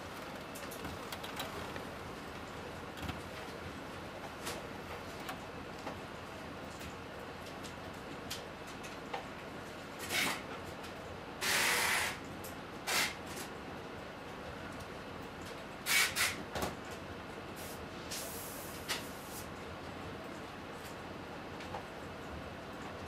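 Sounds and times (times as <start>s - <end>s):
computer noise hiss: 0.0s - 6.6s, 11.3s - 13.5s, 15.8s - 16.5s, 17.4s - 19.6s.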